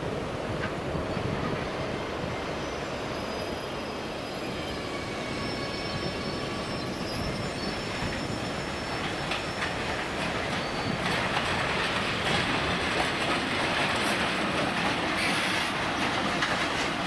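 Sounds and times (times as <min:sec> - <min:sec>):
train rumbling on track: 0:00.0 - 0:17.0.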